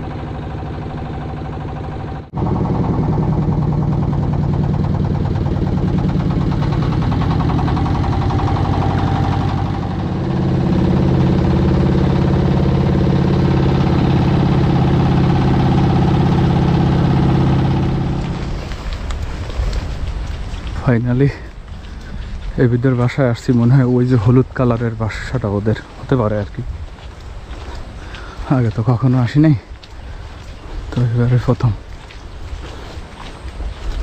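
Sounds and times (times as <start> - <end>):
motorboat engine running: 0.0 - 34.0.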